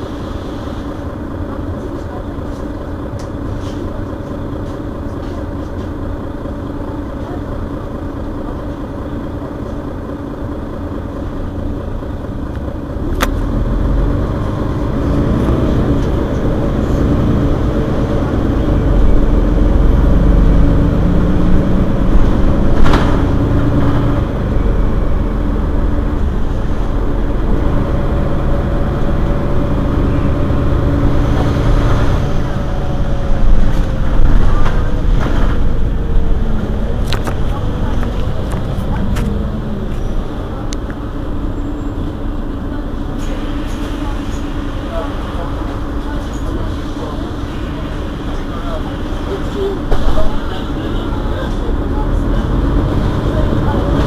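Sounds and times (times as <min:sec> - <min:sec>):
bus diesel engine idling: 0:00.0 - 0:54.0.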